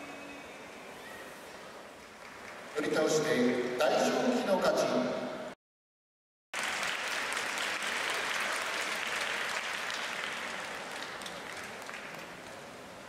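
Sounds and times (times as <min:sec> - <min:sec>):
crowd applauding: 0:01.4 - 0:03.3, 0:06.6 - 0:12.9.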